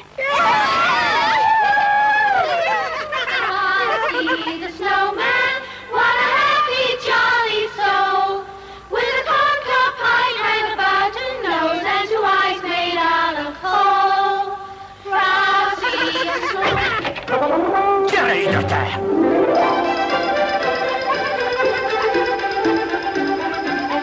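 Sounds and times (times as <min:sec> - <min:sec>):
chorus of high voices singing: 0:03.4 - 0:16.8.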